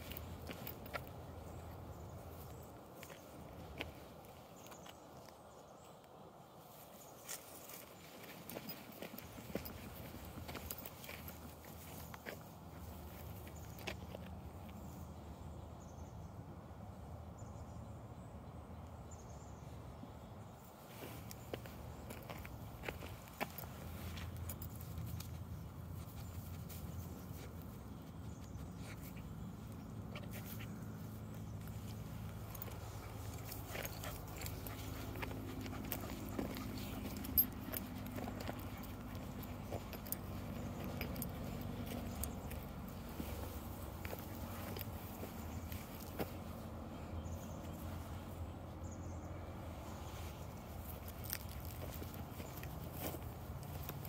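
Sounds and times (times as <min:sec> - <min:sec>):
dry grass rustling: 0:00.0 - 0:05.0, 0:06.7 - 0:14.9, 0:20.8 - 0:48.3, 0:49.6 - 0:54.0
dog sniffing: 0:32.3 - 0:45.7.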